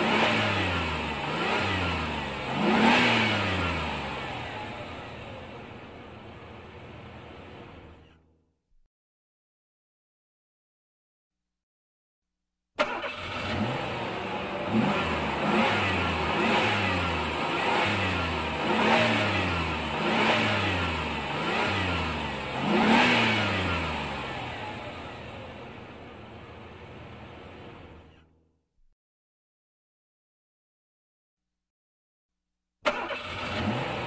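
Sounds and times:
car engine revving: 0.0 - 8.2, 12.8 - 28.2, 32.9 - 34.0.

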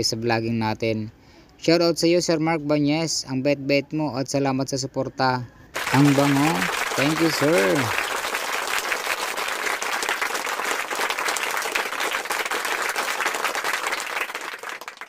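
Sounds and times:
crowd applause: 5.8 - 15.0.

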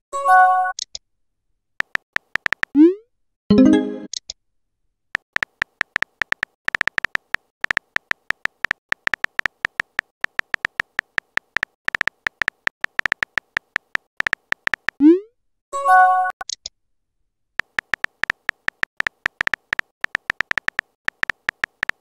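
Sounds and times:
phone keyboard taps: 1.8 - 2.8, 5.2 - 15.0, 17.6 - 22.0.

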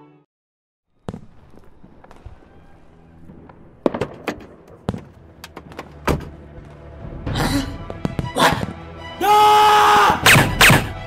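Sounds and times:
car door knocks and clunks: 4.9 - 6.4.

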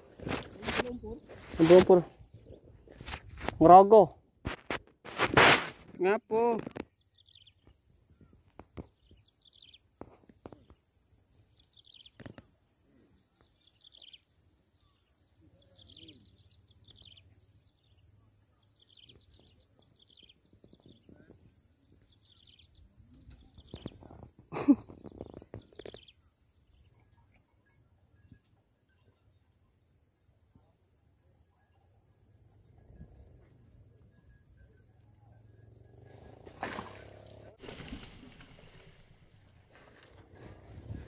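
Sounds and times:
rustling through grass: 0.0 - 3.6, 4.4 - 6.0, 36.1 - 41.0
bird chirping: 6.8 - 29.8.

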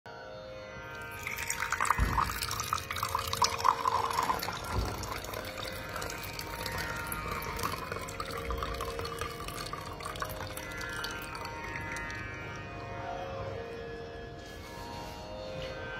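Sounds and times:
tap water pouring into glass: 1.0 - 12.6.

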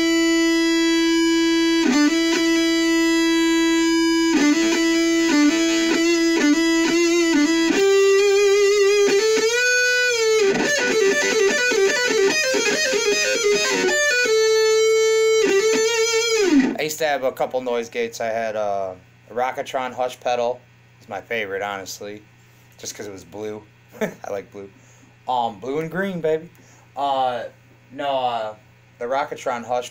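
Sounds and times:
distorted electric guitar lead: 0.0 - 16.8.

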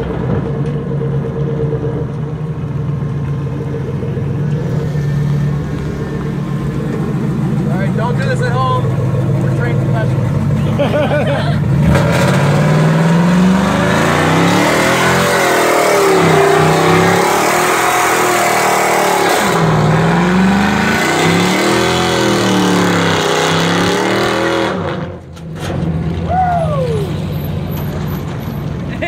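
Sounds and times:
tyres spinning on pavement: 0.0 - 18.3
truck engine revving: 0.0 - 29.0.

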